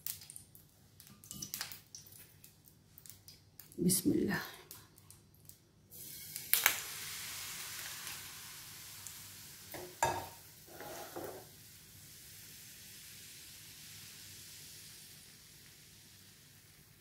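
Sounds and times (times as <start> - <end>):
batter sizzling in hot oil: 5.9 - 17.0
cookware knocks: 9.8 - 11.4.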